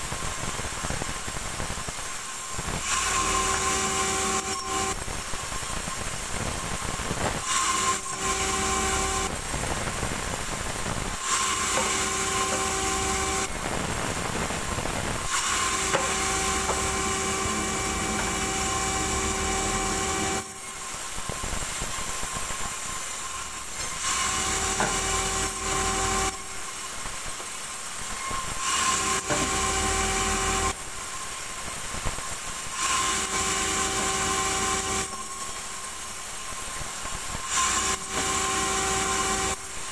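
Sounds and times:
band saw cutting logs: 2.8 - 5.1, 7.4 - 9.5, 11.2 - 14.4, 15.2 - 26.8, 28.3 - 30.8, 32.7 - 35.4, 37.4 - 39.7.

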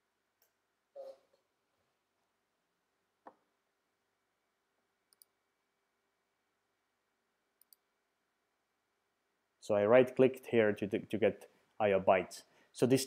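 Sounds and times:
computer mouse click: 5.1 - 5.4, 7.6 - 7.9.

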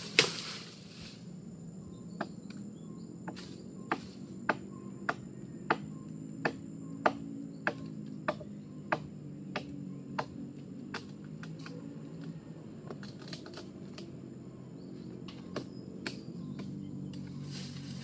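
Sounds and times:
rush of leaves and twigs: 0.0 - 2.6, 10.3 - 18.0
wood chopping knocks: 3.3 - 11.7.

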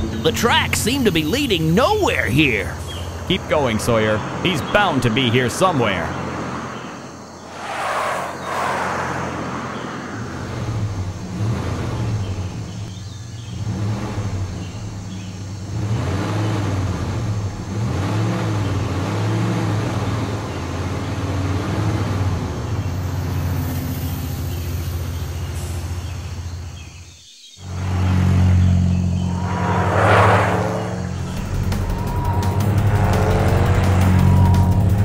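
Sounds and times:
cartoon vehicle engine: 0.0 - 6.3, 27.7 - 35.0
rushing whoosh: 7.4 - 10.3, 29.1 - 35.0.

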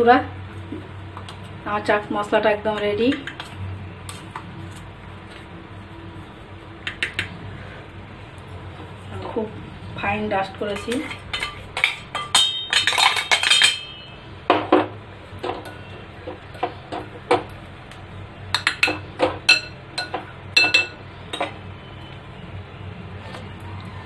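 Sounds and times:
spoon scraping metal jar: 10.7 - 14.1
spoon clinking glass bowl: 10.8 - 14.2, 18.5 - 21.5.

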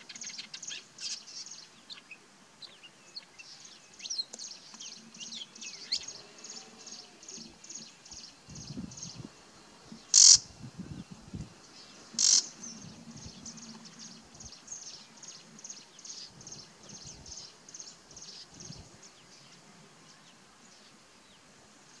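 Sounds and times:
bird harsh calls: 10.0 - 10.5, 12.0 - 14.3.

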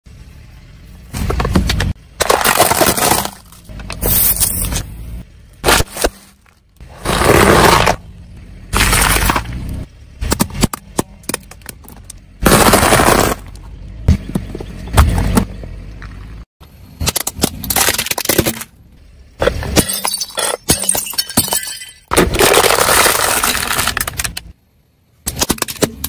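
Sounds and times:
tyre crushing objects on asphalt: 1.1 - 4.8, 5.6 - 8.1, 8.7 - 16.3, 22.1 - 24.3.

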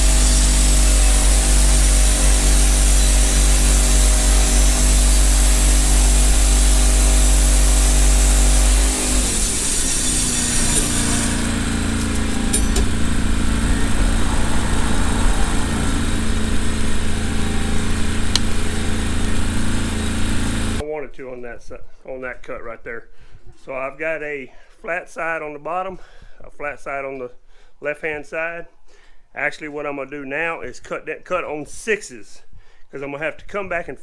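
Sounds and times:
band sawmill sawing log: 0.0 - 20.8.

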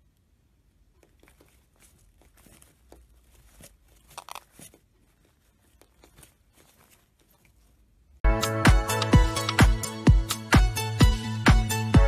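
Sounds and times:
parrots clicking and rustling: 0.8 - 7.9.

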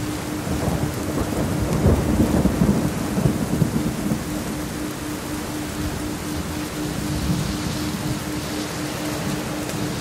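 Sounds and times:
thunder rolling: 0.0 - 4.8
low pulsing tone: 0.0 - 10.0
steady rain: 0.0 - 10.0.

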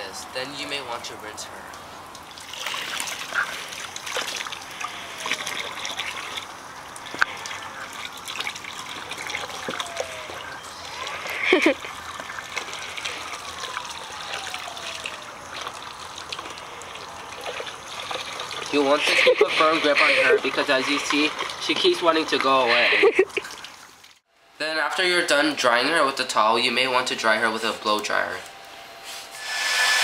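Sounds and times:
hose water running: 0.6 - 24.3, 29.3 - 30.0
water splashing into basin: 1.7 - 22.6.

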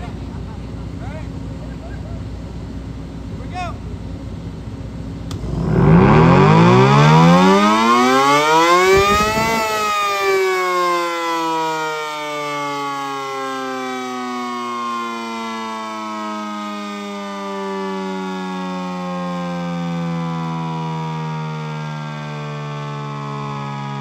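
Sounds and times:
siren winding down: 5.3 - 24.0.

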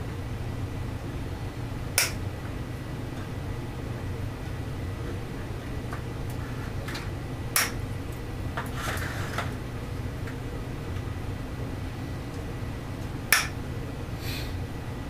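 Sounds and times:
low background hum: 0.0 - 15.0
cutters snapping: 2.0 - 2.2.

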